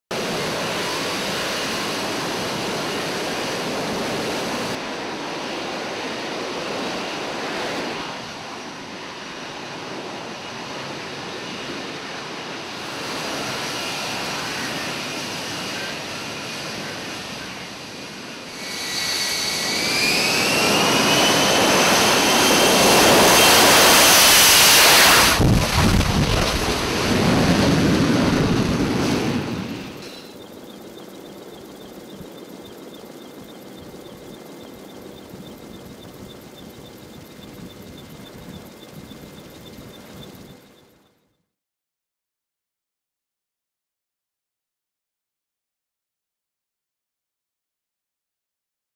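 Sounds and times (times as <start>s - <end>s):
jet engine roaring at high power: 0.1s - 40.9s
rising jet whine: 0.2s - 40.7s.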